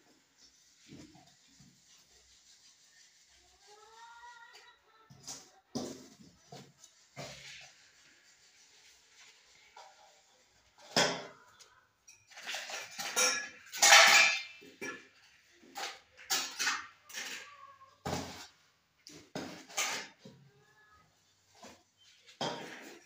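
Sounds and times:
bowls and utensils clattering: 0:09.7 - 0:20.4, 0:21.6 - 0:23.0.

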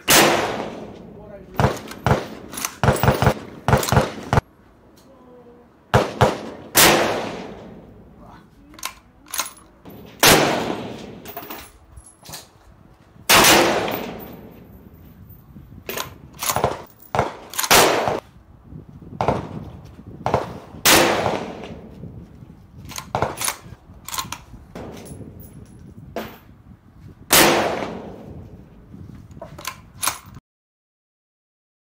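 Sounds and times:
rifle shots echoing: 0:00.0 - 0:04.4, 0:05.9 - 0:08.1, 0:09.8 - 0:11.4, 0:13.3 - 0:14.6, 0:16.4 - 0:18.2, 0:20.3 - 0:21.8, 0:27.3 - 0:28.3
rifle bolt clicking: 0:08.7 - 0:09.7.

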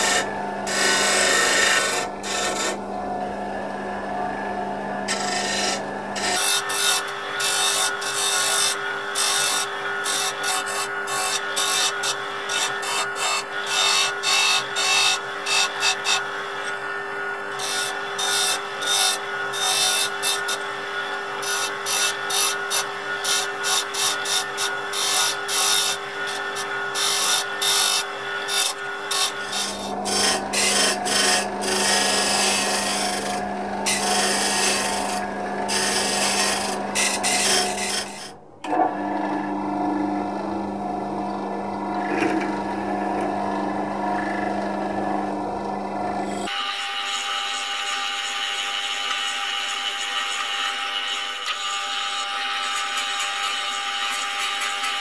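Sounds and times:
chisel scraping spinning wood: 0:00.0 - 0:02.8, 0:05.1 - 0:38.4
wood lathe motor humming: 0:00.0 - 0:03.8, 0:05.1 - 0:55.0.

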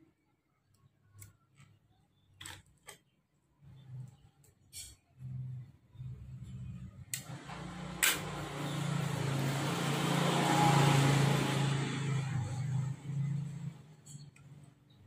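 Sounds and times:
motor vehicle passing: 0:05.3 - 0:15.0.

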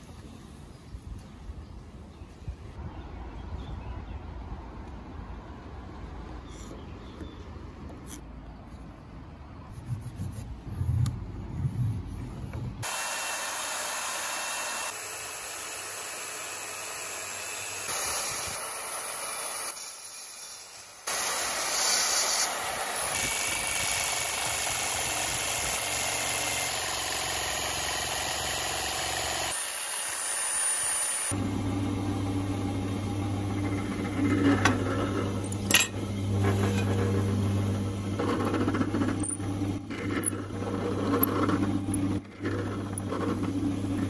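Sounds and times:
jigsaw cutting wood: 0:12.8 - 0:35.7
circular saw cutting wood: 0:12.8 - 0:44.0.

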